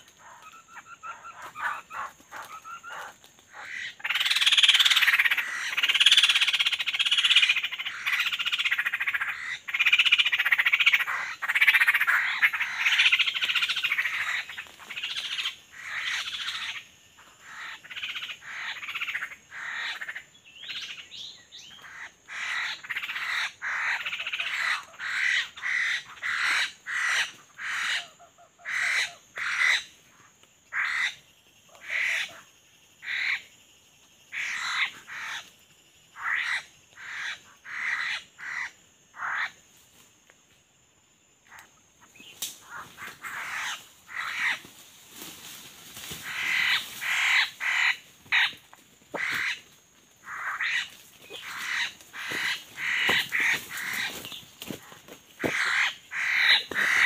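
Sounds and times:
harsh animal calls: 0:42.6 - 0:44.7, 0:46.1 - 0:57.0.

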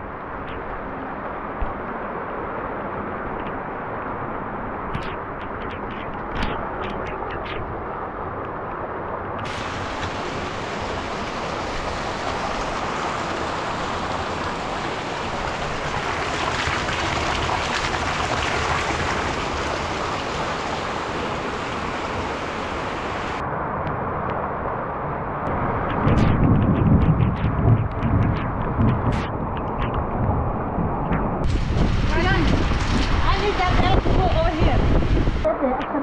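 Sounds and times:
steady rain: 0:00.0 - 0:36.0
water splashing into barrel: 0:15.4 - 0:20.9.

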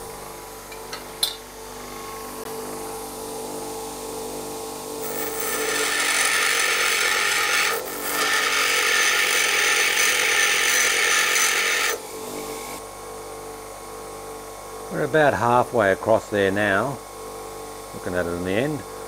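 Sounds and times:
hissing grind of tool on wheel: 0:05.0 - 0:12.0
bench grinder motor humming: 0:05.0 - 0:12.8.

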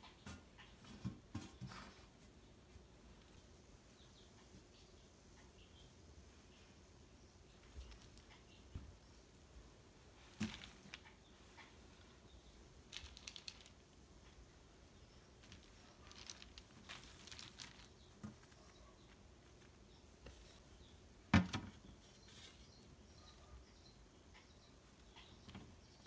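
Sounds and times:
sacks rustling: 0:10.2 - 0:11.1, 0:15.4 - 0:18.7.

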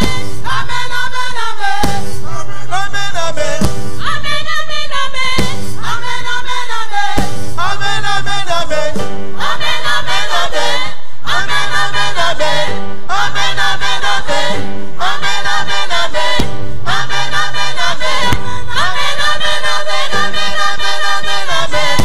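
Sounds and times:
sharp beat: 0:00.0 - 0:00.6, 0:01.8 - 0:02.3, 0:03.4 - 0:04.2, 0:05.4 - 0:06.2, 0:07.1 - 0:09.5, 0:16.2 - 0:17.4
gospel choir singing: 0:00.0 - 0:22.0.

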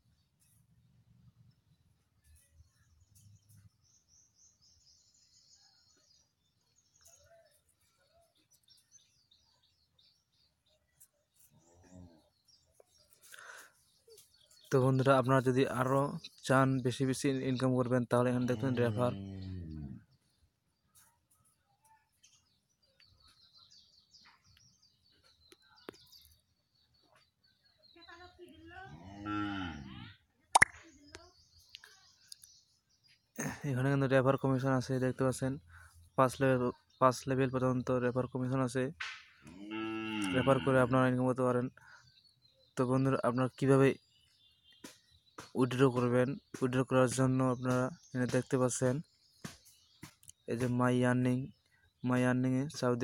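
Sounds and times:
small bird chirping: 0:18.4 - 0:33.6, 0:41.9 - 0:50.8.

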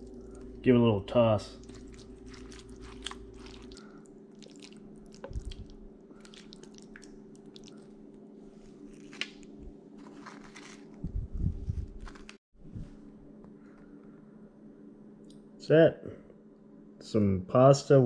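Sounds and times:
steady low hum: 0:00.0 - 0:18.0
pasta squishing in sauce: 0:01.4 - 0:11.0.

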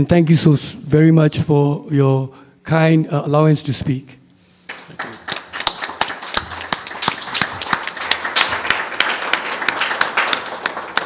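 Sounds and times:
audience applauding: 0:04.7 - 0:11.0.

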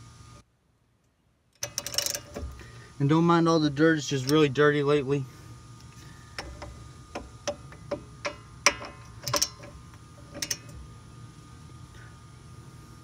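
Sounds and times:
wrench metallic clicks and clinks: 0:01.6 - 0:02.5, 0:08.2 - 0:10.8.

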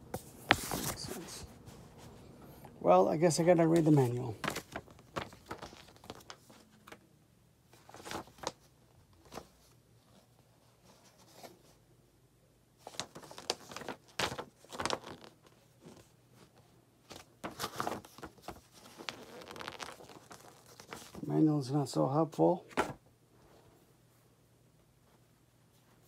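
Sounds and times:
paper rustling: 0:00.1 - 0:02.2, 0:03.4 - 0:07.0, 0:07.7 - 0:11.8, 0:12.8 - 0:21.3, 0:22.7 - 0:23.0.

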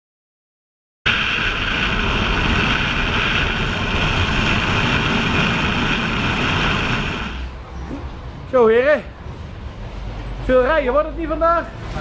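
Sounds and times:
wind rush: 0:01.1 - 0:07.6.

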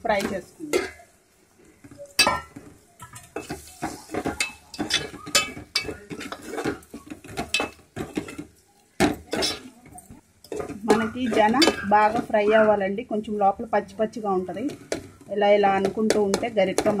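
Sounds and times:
metal spoon scraping metal pot: 0:02.2 - 0:08.5, 0:09.2 - 0:12.5.

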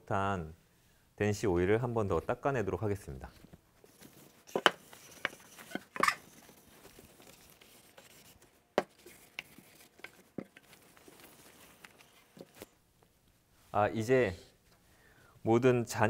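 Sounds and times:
cloth rustling on wood: 0:03.2 - 0:13.8.

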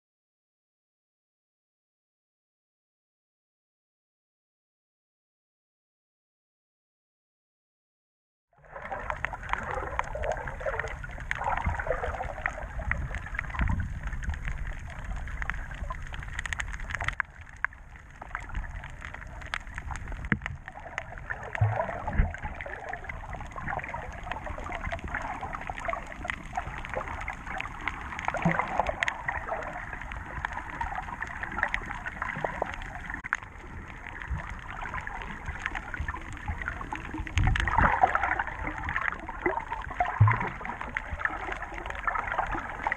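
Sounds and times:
small crackles: 0:08.6 - 0:42.9
underwater rushing and gurgling water: 0:08.6 - 0:42.9.

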